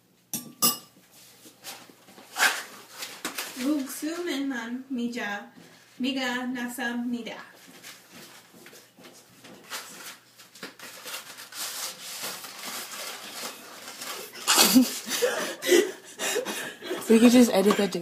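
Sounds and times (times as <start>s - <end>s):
dry noodles rustling in box: 9.6s - 15.0s.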